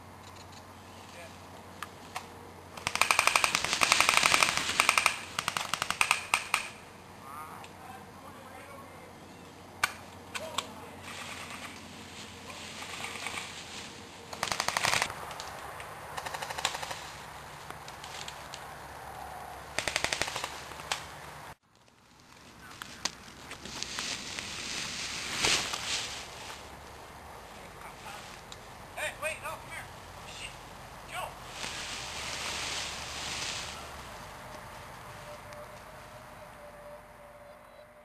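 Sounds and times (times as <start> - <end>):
airsoft guns firing rapid bursts: 2.8 - 6.8, 14.4 - 15.1, 16.2 - 17.0, 19.8 - 20.7.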